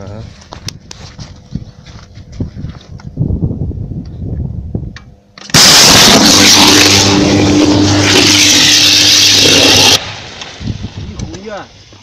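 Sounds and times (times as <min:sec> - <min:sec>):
deep mains buzz: 0:03.1 - 0:10.0
electrical arc crackling roar: 0:05.4 - 0:11.6.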